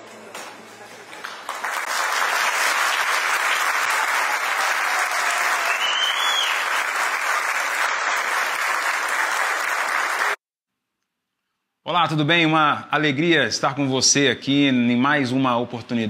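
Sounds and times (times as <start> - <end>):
audience applauding: 0.1 - 10.4.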